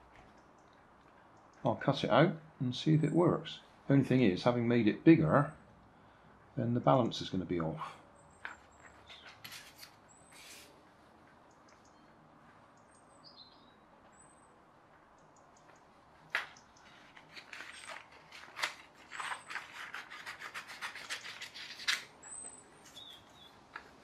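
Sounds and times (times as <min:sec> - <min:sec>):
scissors cutting paper: 0:17.2 - 0:22.1.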